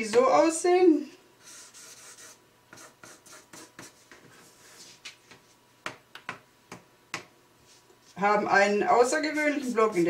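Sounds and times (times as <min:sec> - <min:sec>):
pen scratching on paper: 0:01.4 - 0:04.1.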